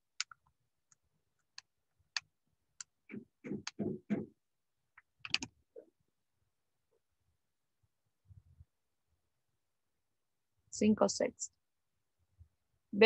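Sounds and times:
keyboard or mouse clicks: 0.2s - 4.3s, 5.0s - 5.6s.

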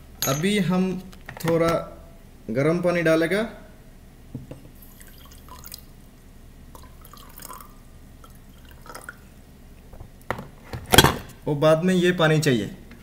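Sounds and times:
cup knock: 4.4s - 4.7s
faint water drips: 4.8s - 5.9s, 6.7s - 9.4s.

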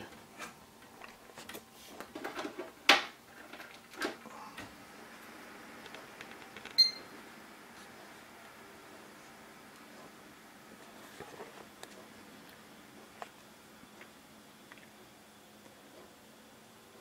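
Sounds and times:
cooling fans whirring: 0.0s - 17.0s
short high beep: 6.8s - 7.1s.

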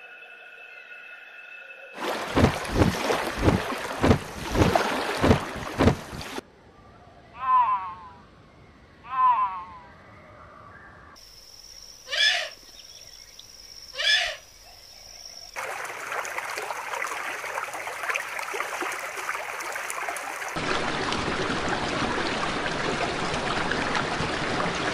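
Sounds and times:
high-pitched whine: 0.0s - 2.0s.

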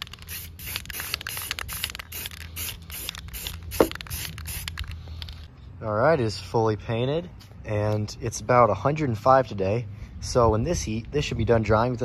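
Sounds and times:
spray can hissing in bursts: 0.1s - 4.8s.

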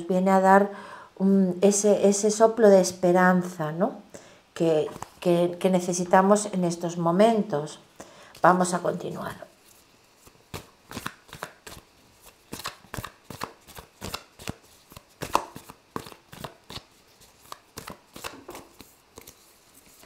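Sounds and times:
cards shuffling and slapping: 4.9s - 5.2s, 9.7s - 20.0s.

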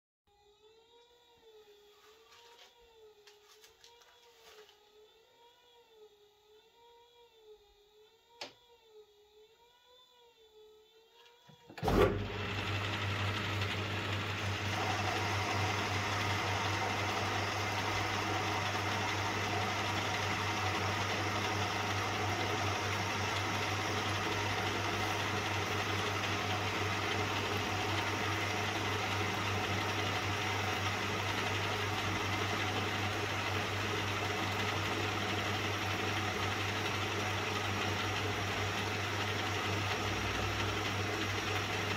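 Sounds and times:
metal lathe running: 11.8s - 41.9s.

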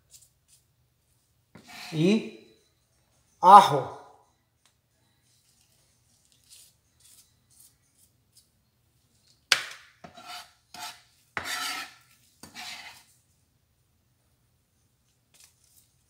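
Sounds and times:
knife scraping cutting board: 1.6s - 2.3s, 6.3s - 8.4s, 10.0s - 13.1s.

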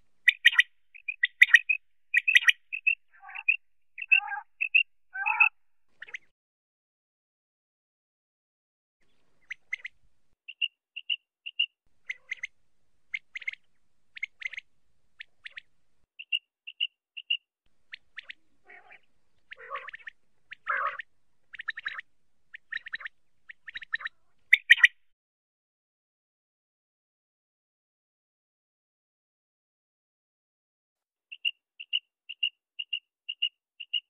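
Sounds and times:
quail calling: 0.2s - 6.3s, 10.5s - 12.5s, 13.1s - 15.7s, 17.9s - 25.0s.

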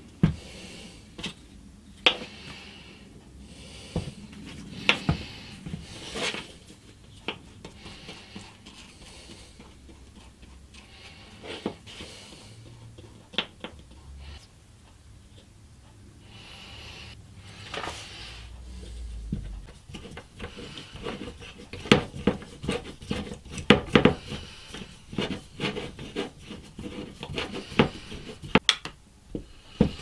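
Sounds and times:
glue brush rubbing: 19.3s - 28.6s.

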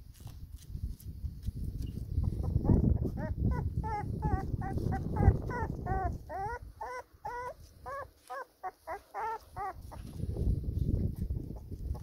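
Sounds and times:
puppies whimpering: 2.2s - 10.2s.

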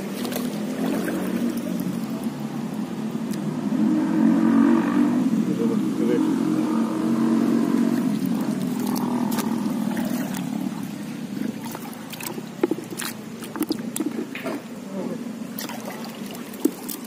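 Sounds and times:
shallow water splashing and sloshing: 0.0s - 3.5s, 7.5s - 17.0s
sharp splashes and knocks: 0.0s - 3.5s, 7.8s - 14.7s, 15.5s - 17.0s
low steady hum: 0.0s - 17.0s.

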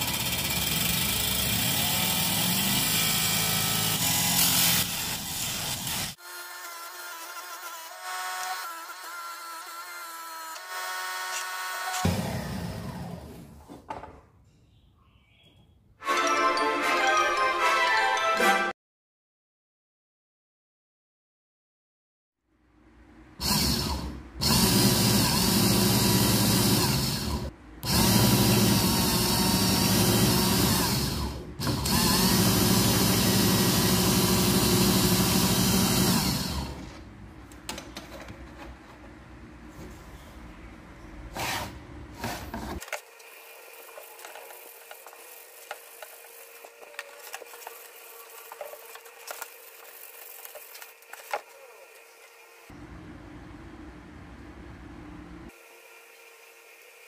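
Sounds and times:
electric power tool running: 0.0s - 13.5s, 23.4s - 36.9s.

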